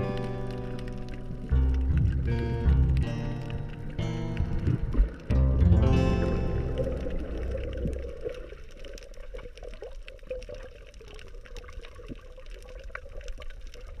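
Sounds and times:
small clicks and crackles: 0.0 - 5.3, 6.9 - 14.0
underwater water wash: 0.0 - 14.0
bubbling blips: 1.2 - 9.0.

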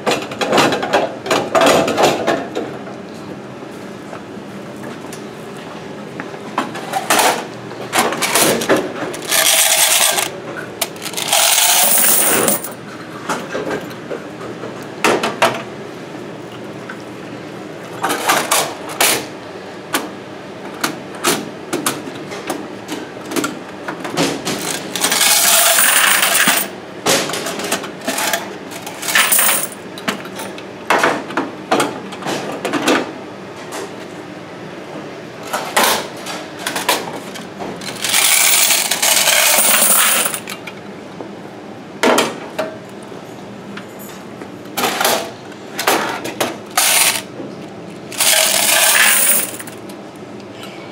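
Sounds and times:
metallic clicks and clatter: 8.0 - 12.7
coins pouring into plastic bucket: 9.2 - 10.3, 11.0 - 12.8, 24.6 - 26.7, 28.9 - 29.8, 37.8 - 40.5, 46.8 - 47.3, 48.1 - 49.7.

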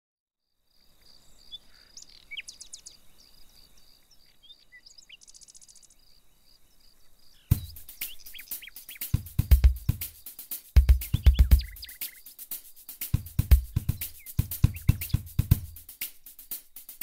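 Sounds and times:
birds chirping: 0.8 - 16.0
music with heavy drum beat: 7.5 - 17.0.

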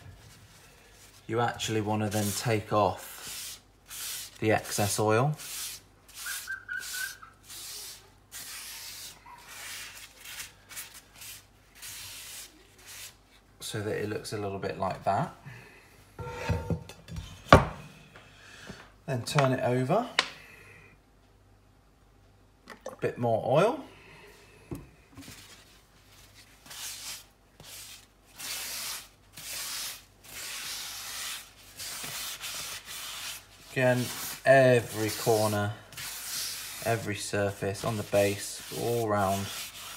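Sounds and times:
paper towel rubbing on skillet: 0.0 - 10.5, 25.3 - 39.9.

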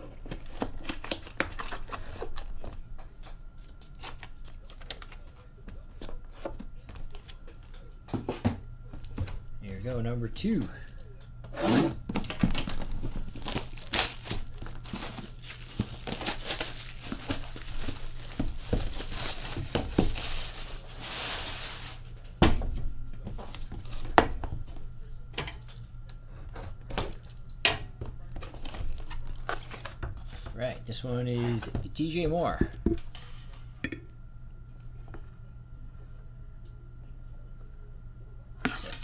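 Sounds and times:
plastic wrap crinkling: 12.2 - 22.0.

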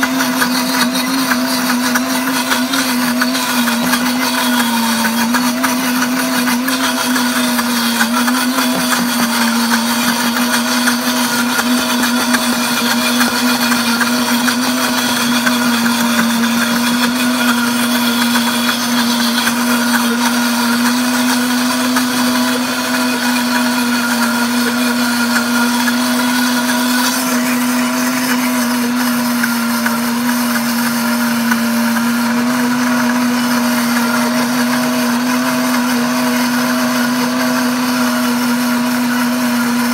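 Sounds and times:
blender motor whine: 0.0 - 39.9.

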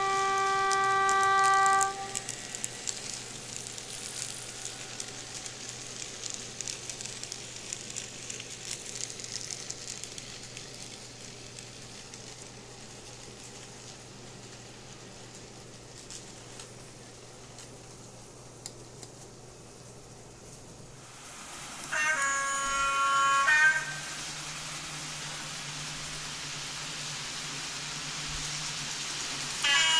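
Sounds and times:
diesel locomotive horn: 0.0 - 3.1, 21.7 - 25.6, 29.5 - 29.9
model wagons rolling over track: 0.0 - 18.1.

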